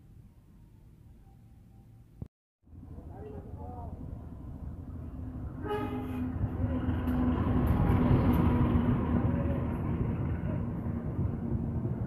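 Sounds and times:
locomotive engine and wheel rumble: 0:02.7 - 0:12.0
train horn blast: 0:05.6 - 0:06.5.

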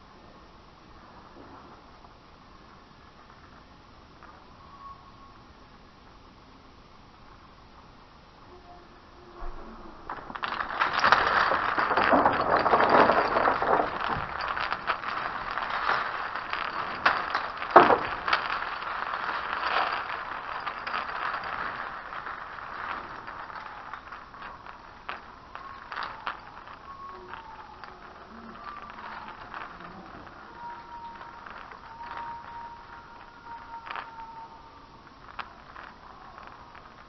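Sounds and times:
beaded curtain rattling: 0:09.0 - 0:37.0.

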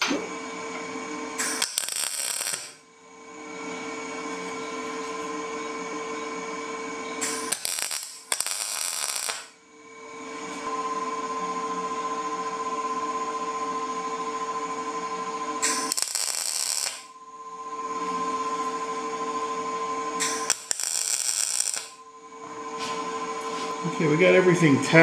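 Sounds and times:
welder hum: 0:00.0 - 0:12.6, 0:15.5 - 0:24.7
crackling welding arc: 0:01.4 - 0:02.8, 0:07.2 - 0:09.6, 0:15.6 - 0:17.1, 0:20.2 - 0:22.0.

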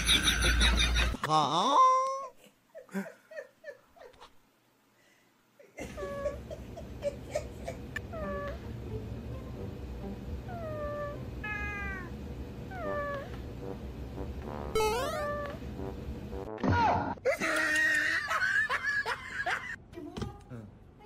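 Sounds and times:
low background hum: 0:00.0 - 0:21.0
cat mewing: 0:10.5 - 0:12.1, 0:12.7 - 0:13.4, 0:14.9 - 0:15.6.

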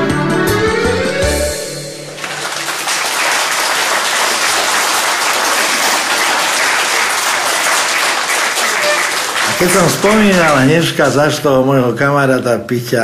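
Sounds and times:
music: 0:00.0 - 0:03.0
audience applauding: 0:02.1 - 0:11.2.

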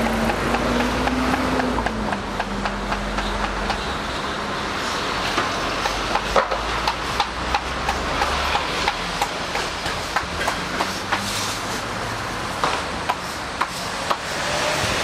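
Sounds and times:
sharp taps and clicks: 0:00.0 - 0:03.9, 0:05.3 - 0:11.2
market background hum: 0:00.0 - 0:15.0.

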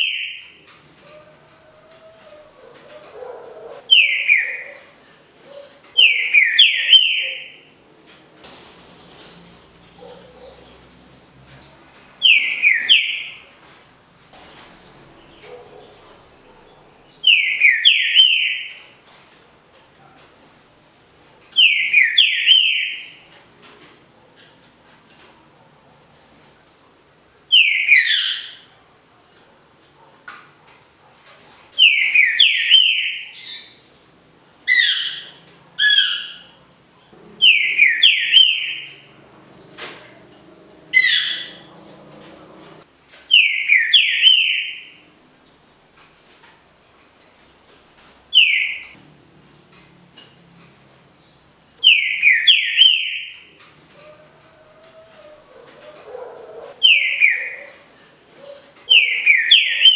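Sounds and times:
bird singing whistled phrases: 0:03.9 - 0:04.8, 0:37.4 - 0:38.9, 0:43.4 - 0:44.8, 0:51.9 - 0:53.3, 0:56.8 - 0:57.7.

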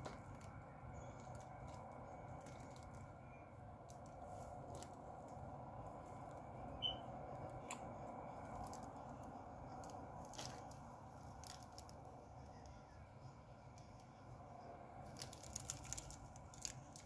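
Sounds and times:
distant road traffic: 0:00.0 - 0:17.0
short high chirp: 0:06.8 - 0:07.1.

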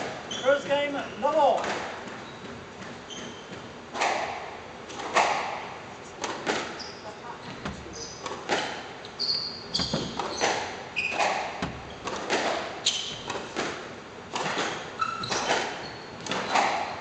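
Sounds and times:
shoes squeaking on wooden floor: 0:00.0 - 0:03.9, 0:06.4 - 0:13.7, 0:14.4 - 0:17.0
squash ball knocks: 0:03.9 - 0:06.8, 0:09.8 - 0:17.0.

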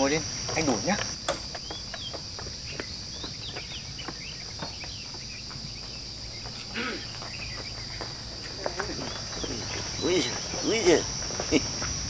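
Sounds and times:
high-pitched insect drone: 0:00.0 - 0:12.0
bird chirps: 0:00.3 - 0:11.6.

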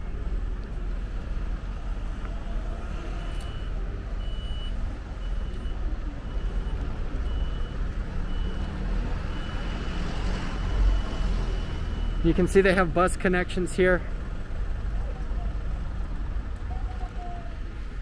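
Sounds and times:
street traffic rumble: 0:00.0 - 0:18.0
electronic warning beeps: 0:03.2 - 0:12.3.

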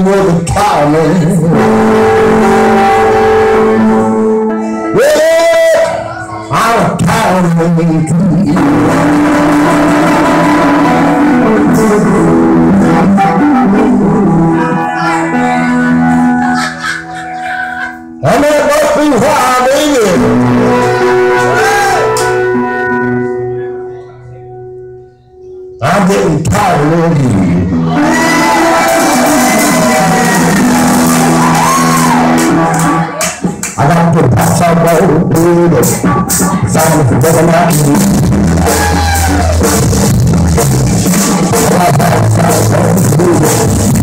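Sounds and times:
person singing: 0:00.0 - 0:22.9, 0:25.4 - 0:39.9, 0:40.6 - 0:44.0
amplified guitar playing: 0:00.0 - 0:44.0
electric bass: 0:00.0 - 0:44.0
electric blues band: 0:00.0 - 0:44.0
guitar chord ringing: 0:01.5 - 0:05.0, 0:20.2 - 0:25.9
drum kit: 0:08.4 - 0:16.6, 0:27.8 - 0:44.0.

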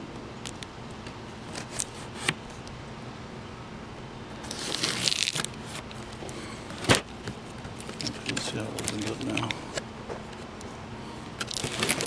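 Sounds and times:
packing tape tearing: 0:01.5 - 0:02.4, 0:04.4 - 0:06.1, 0:06.7 - 0:09.6, 0:11.4 - 0:12.0.

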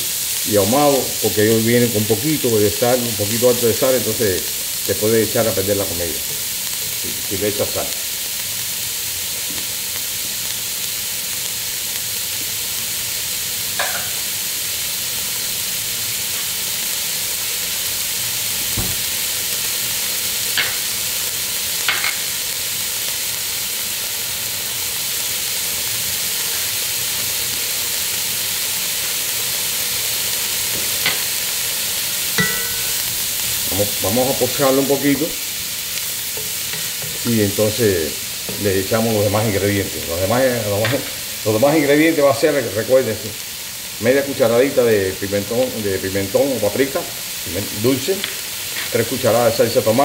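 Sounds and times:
vegetables sizzling in oil: 0:00.0 - 0:50.0
spoon clicking on pan: 0:13.8 - 0:14.2, 0:21.9 - 0:22.2, 0:32.4 - 0:33.0.

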